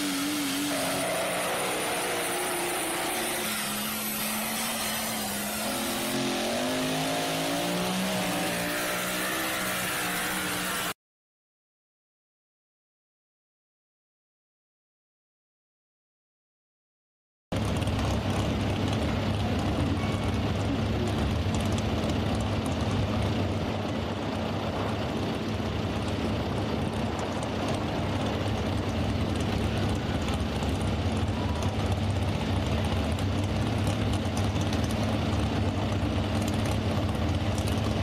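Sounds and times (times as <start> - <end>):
truck engine idling: 17.6 - 38.0.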